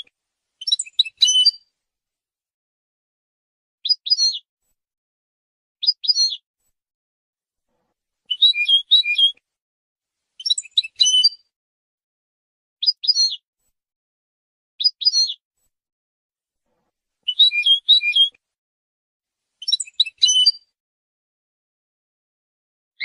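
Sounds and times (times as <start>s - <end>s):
goldfinch twittering song: 0.6s - 1.6s, 8.3s - 9.4s, 10.4s - 11.4s, 12.8s - 13.4s, 17.3s - 18.3s, 19.6s - 20.7s.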